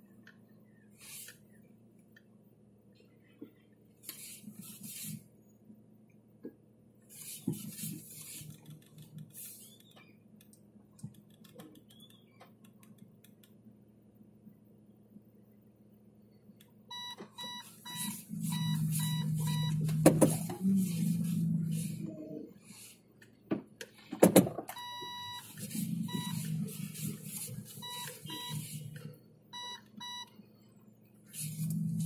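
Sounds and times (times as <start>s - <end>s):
vehicle beeper short beeps: 16.9s - 19.9s, 24.8s - 26.5s, 27.8s - 28.8s, 29.6s - 30.3s.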